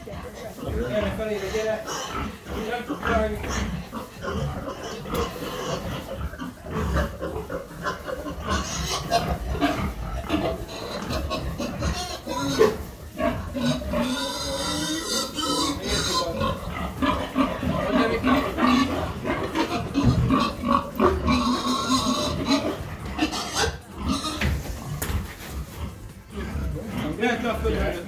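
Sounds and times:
pig grunting: 0.5 - 28.0
pig squealing: 1.4 - 24.6.

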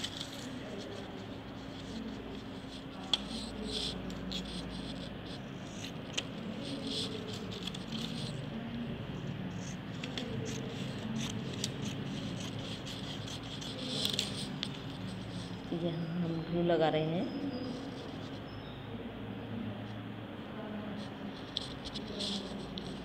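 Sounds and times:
paper rustling and scraping: 0.0 - 15.8, 21.4 - 23.0.

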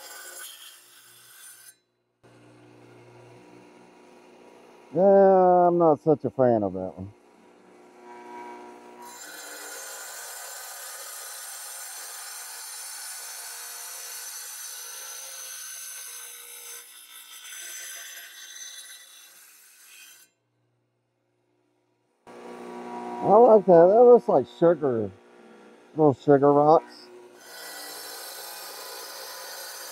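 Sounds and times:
saw blade grinding stone: 0.0 - 3.7, 7.4 - 20.3, 22.3 - 29.9
saw motor whine: 2.3 - 5.8, 7.1 - 9.8, 22.3 - 29.9.

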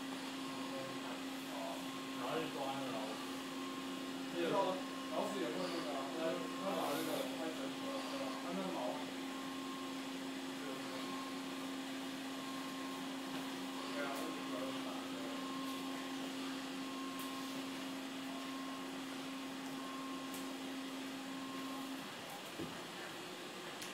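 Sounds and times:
low machine hum: 0.0 - 23.9
faint voices: 0.5 - 9.8.

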